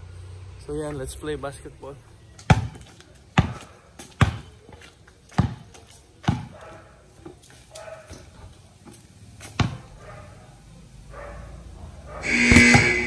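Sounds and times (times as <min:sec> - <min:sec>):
basketball bouncing on concrete: 0:02.4 - 0:06.7, 0:08.8 - 0:09.9, 0:12.3 - 0:13.0.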